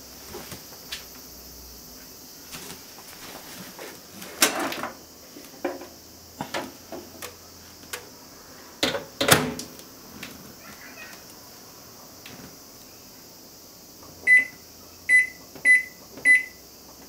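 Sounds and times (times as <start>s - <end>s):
dish knocking and clattering: 5.6s - 5.9s
microwave door shutting: 8.8s - 9.7s.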